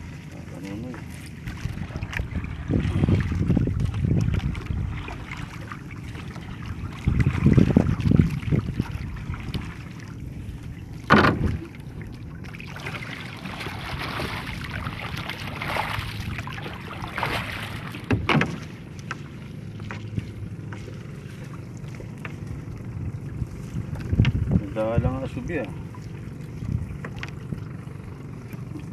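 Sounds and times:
paddle in water: 0.0s - 28.9s
water splashing around boat: 0.0s - 28.9s
sharp knocks on wood: 11.1s - 11.5s.

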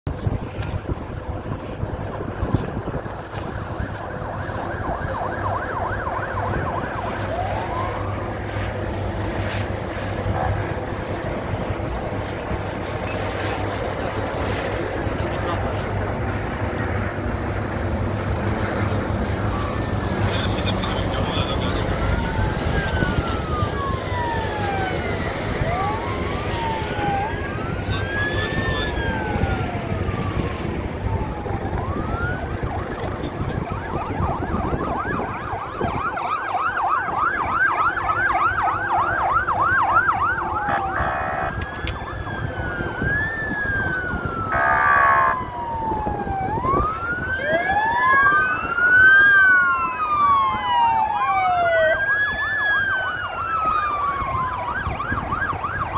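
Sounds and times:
emergency sirens wailing: 0.0s - 55.9s
siren fast yelp: 1.8s - 16.0s, 18.9s - 55.9s
short horn blasts: 40.7s - 41.6s.

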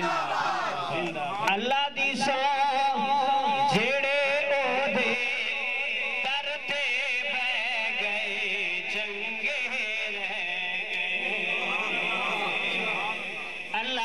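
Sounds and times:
man chanting into a microphone: 0.9s - 14.0s.

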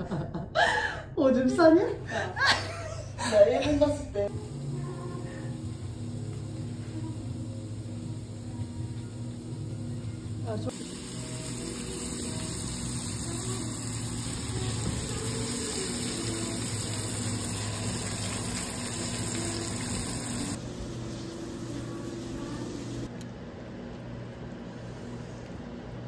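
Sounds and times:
steady low hum: 4.0s - 26.0s
bacon sizzling in a frying pan: 10.4s - 20.6s.

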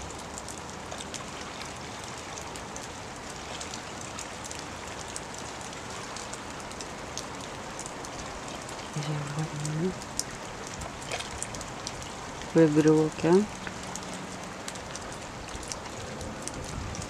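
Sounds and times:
steady rain falling: 0.0s - 17.0s
raindrop hits: 4.4s - 17.0s.

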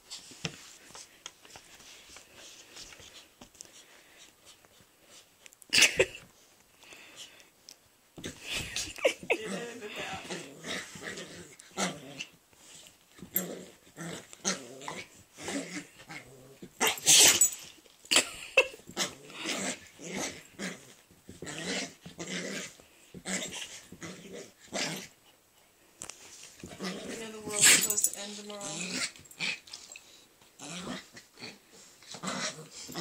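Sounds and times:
dogs growling: 8.2s - 17.5s, 18.8s - 25.3s, 26.6s - 33.0s.

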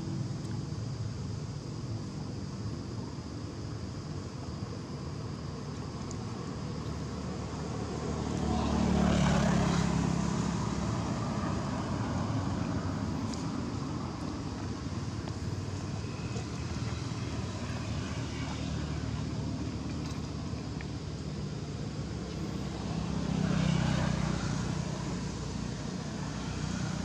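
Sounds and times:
vehicle engine hum: 5.9s - 27.0s
vehicle passing: 7.8s - 13.5s, 22.1s - 27.0s.

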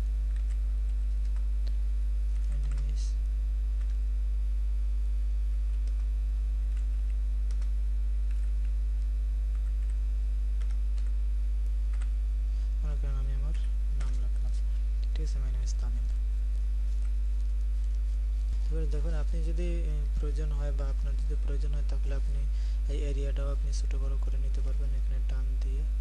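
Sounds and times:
electrical mains hum: 0.0s - 26.0s
keyboard typing clicks: 0.3s - 3.0s, 5.7s - 6.1s, 6.7s - 7.7s, 8.3s - 8.8s, 10.6s - 11.2s, 11.9s - 12.1s, 13.5s - 14.3s.

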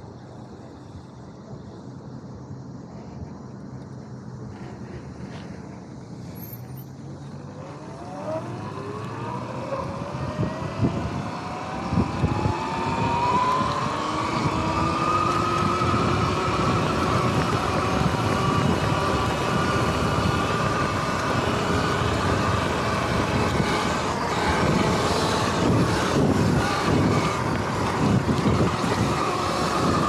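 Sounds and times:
electric motor whine rising: 7.4s - 30.0s
wind rushing over microphone: 7.6s - 30.0s.

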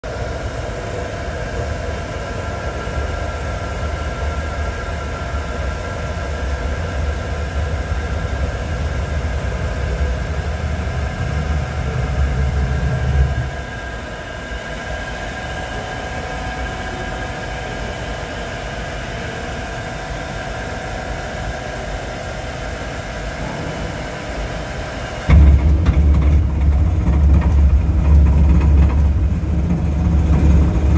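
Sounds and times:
machinery hum: 0.0s - 30.9s
whining tones: 4.6s - 16.0s
low rumble: 5.8s - 13.8s, 23.3s - 30.9s.

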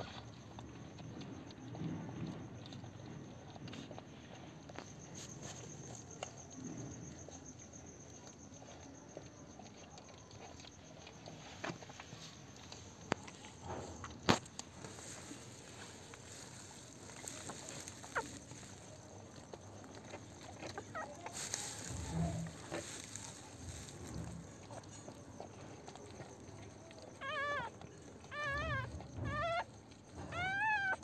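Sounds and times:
puppies squealing: 17.2s - 18.8s, 20.6s - 23.4s, 27.1s - 31.0s.

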